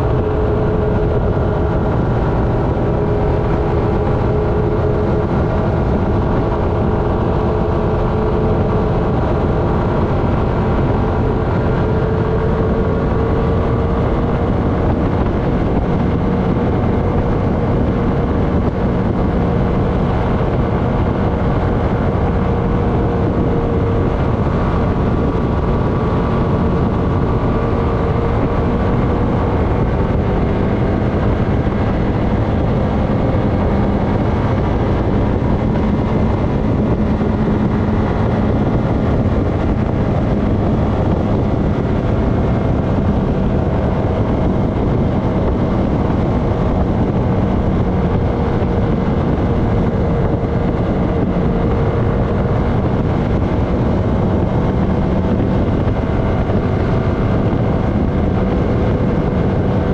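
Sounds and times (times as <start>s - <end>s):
engine droning: 0.0s - 59.9s
wind and tyre rush: 0.0s - 59.9s.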